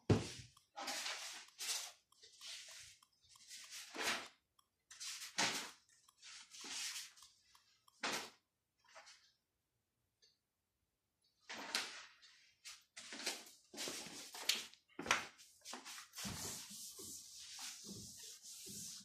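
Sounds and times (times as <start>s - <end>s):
objects rustling and scraping: 0.1s - 7.3s.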